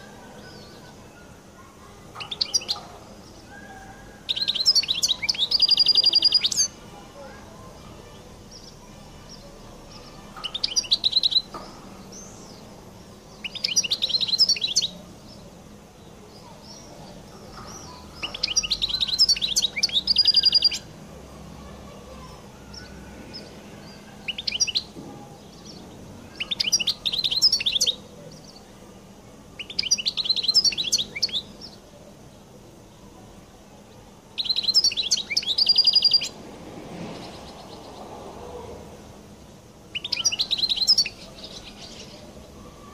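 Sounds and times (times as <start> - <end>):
goldfinch singing: 13.3 - 15.4, 16.4 - 20.9, 29.6 - 31.8, 34.4 - 36.3, 39.9 - 42.9.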